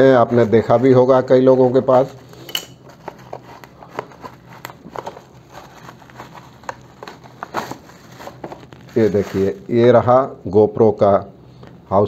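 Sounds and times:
faint rustling: 0:00.3 - 0:09.8
cardboard box being opened: 0:02.9 - 0:09.7.

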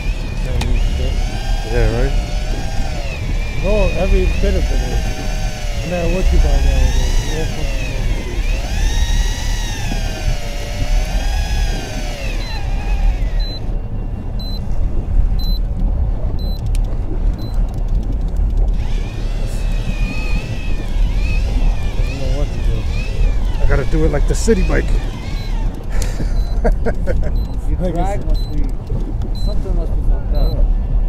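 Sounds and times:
electric fishing reel motor whine: 0:00.0 - 0:14.4, 0:17.5 - 0:26.7
low rumble: 0:00.0 - 0:31.0
short high beeps: 0:12.3 - 0:13.8, 0:14.4 - 0:14.6, 0:15.4 - 0:15.6, 0:16.4 - 0:16.6, 0:26.3 - 0:26.6, 0:27.4 - 0:28.7, 0:29.3 - 0:29.6, 0:30.4 - 0:30.6.

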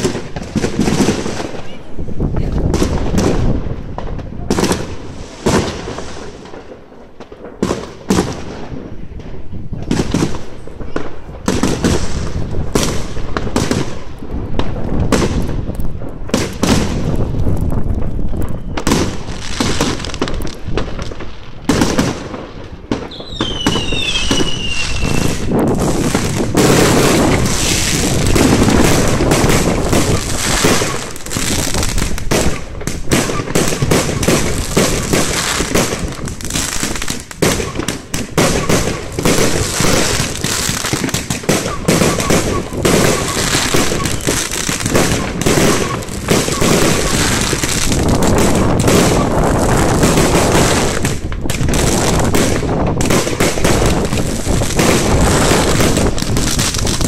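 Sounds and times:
fireworks bangs and crackling: 0:00.0 - 0:57.0
descending firework whistle: 0:18.2 - 0:19.4, 0:23.0 - 0:31.6, 0:33.2 - 0:35.7, 0:41.5 - 0:49.5.

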